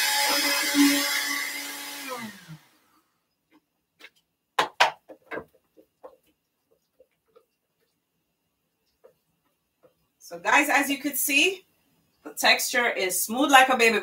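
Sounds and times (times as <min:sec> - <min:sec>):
blender motor spinning down: 0:00.0 - 0:02.8
faint taps: 0:08.8 - 0:10.1.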